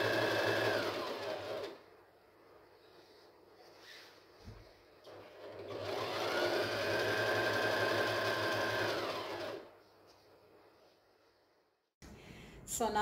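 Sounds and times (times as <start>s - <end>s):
sewing machine stitching: 0.0s - 1.8s, 5.1s - 9.7s.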